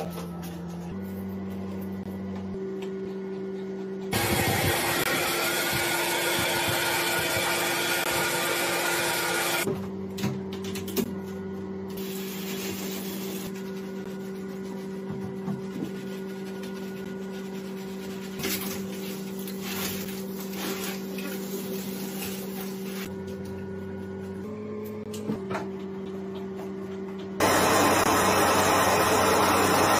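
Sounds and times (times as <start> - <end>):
electric pet dryer rushing: 4.0 - 9.7, 27.4 - 29.9.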